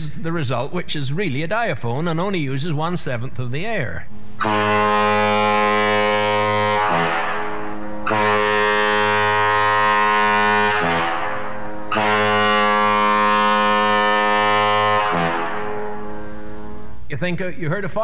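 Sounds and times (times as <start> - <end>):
foghorn blasts with low grunt: 4.4 - 16.9.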